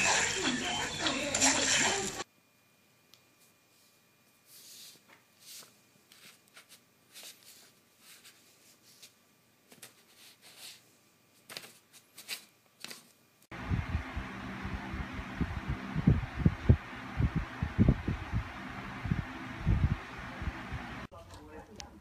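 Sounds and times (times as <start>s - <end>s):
paper rustling and crinkling: 4.5s - 10.8s, 11.4s - 13.2s
low throbbing hum: 13.5s - 21.1s.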